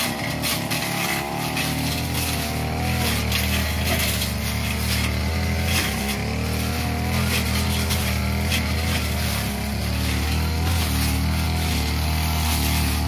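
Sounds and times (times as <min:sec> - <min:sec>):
blade cutting through grass: 0:00.0 - 0:13.0
brush cutter running: 0:00.0 - 0:13.0.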